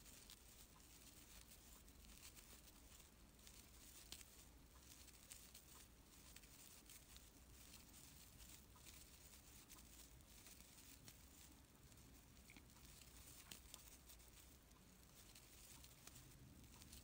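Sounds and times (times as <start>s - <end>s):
soft ticks: 0.0s - 17.0s
yarn rustling with crochet hook: 0.0s - 17.0s.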